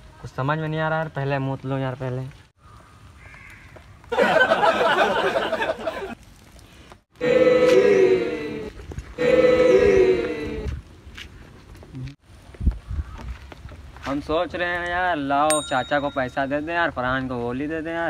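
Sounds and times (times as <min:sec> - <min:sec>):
chanted phrase: 0:07.2 - 0:10.7.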